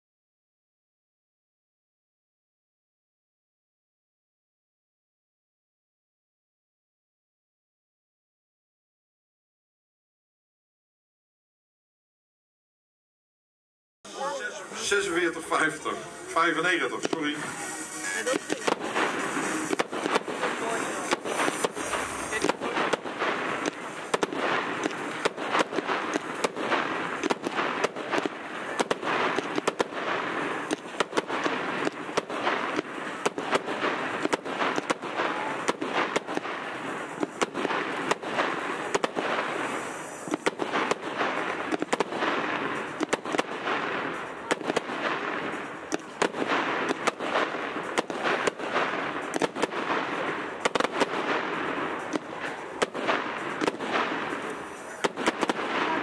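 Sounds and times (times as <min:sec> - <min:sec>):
fireworks bangs and crackles: 0:14.1 - 0:56.0.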